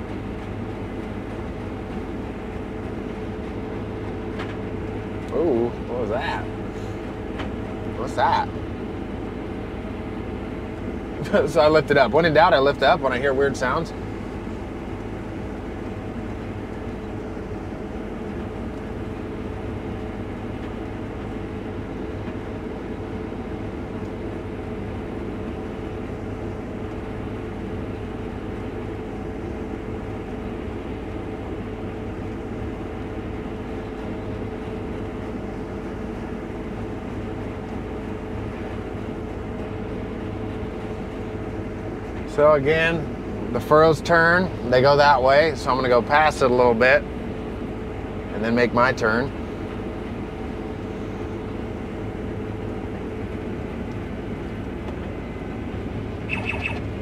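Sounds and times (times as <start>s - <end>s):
combine harvester drone: 0.0s - 57.0s
steady held tone: 55.2s - 57.0s.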